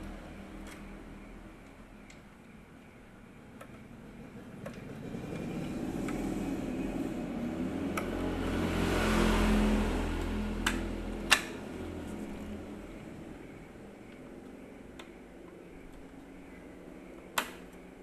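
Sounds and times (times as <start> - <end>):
steady low hum: 0.0 - 18.0
vehicle passing: 3.9 - 14.4.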